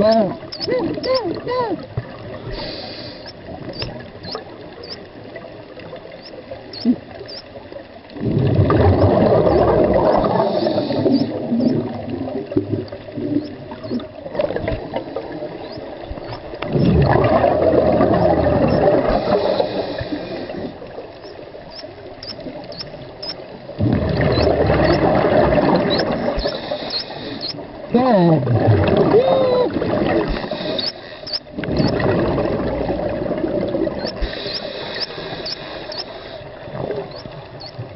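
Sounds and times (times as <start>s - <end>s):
diver inhaling through regulator: 2.5s - 3.4s, 10.1s - 11.4s, 19.0s - 20.8s, 26.3s - 27.6s, 30.2s - 32.0s, 34.0s - 36.6s
diver exhaling bubbles through regulator: 8.2s - 13.4s, 16.7s - 20.8s, 23.8s - 26.9s, 28.4s - 30.8s, 31.6s - 35.5s.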